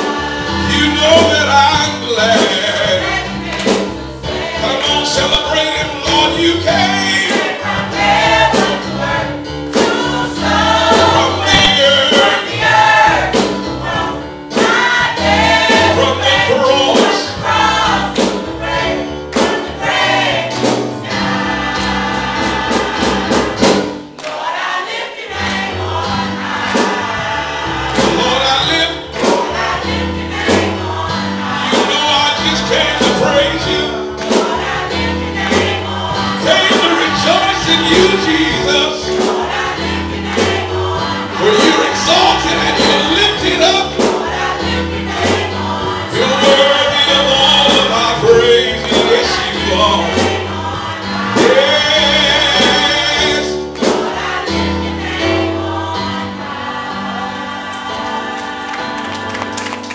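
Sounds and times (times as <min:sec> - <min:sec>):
steady beat: 0:00.0 - 0:56.5
gospel choir singing: 0:00.0 - 0:59.9
keyboard accompaniment: 0:00.0 - 0:59.9.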